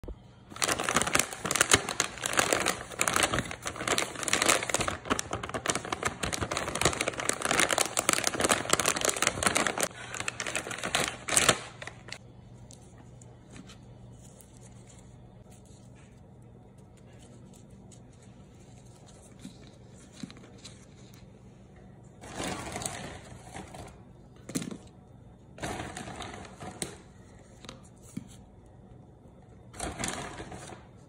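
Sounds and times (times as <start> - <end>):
plastic candy bag crinkling: 0.5 - 12.2.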